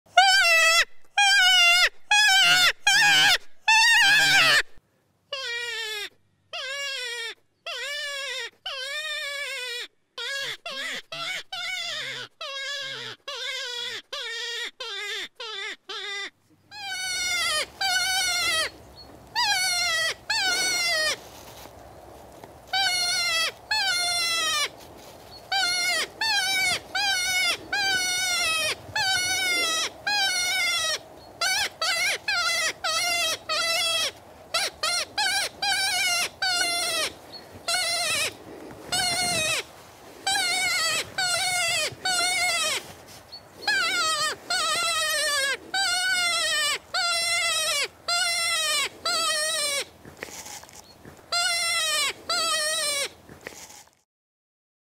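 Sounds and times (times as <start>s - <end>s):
background hiss: 15.3s - 54.0s.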